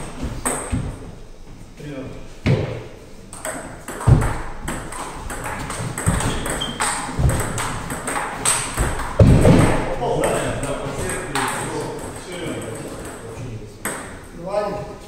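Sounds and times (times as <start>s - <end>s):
feet thumping on wooden floor: 0.1s - 1.6s, 4.0s - 10.0s
table tennis ball clicking: 3.3s - 9.2s.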